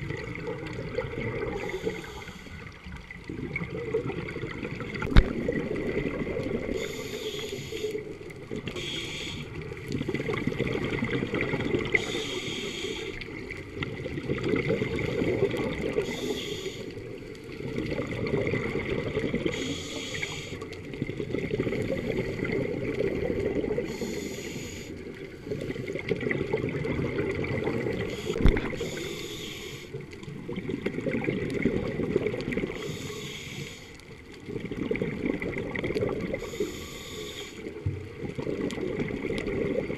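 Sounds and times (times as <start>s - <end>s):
exhaled air bubbling underwater: 0.0s - 39.9s
regulator breathing hiss: 1.6s - 2.7s, 6.7s - 9.6s, 12.0s - 13.3s, 16.0s - 17.0s, 19.5s - 20.6s, 23.8s - 25.0s, 28.1s - 30.0s, 32.8s - 34.0s, 36.4s - 37.7s.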